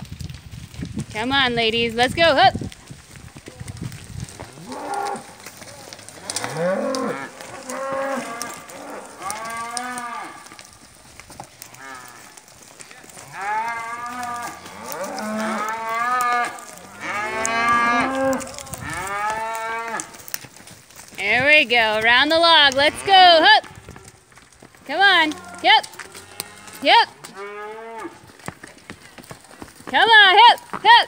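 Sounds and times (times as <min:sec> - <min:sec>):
cows mooing: 0:04.5 - 0:10.8, 0:11.6 - 0:12.4, 0:13.0 - 0:20.3, 0:21.2 - 0:24.1, 0:24.9 - 0:28.4.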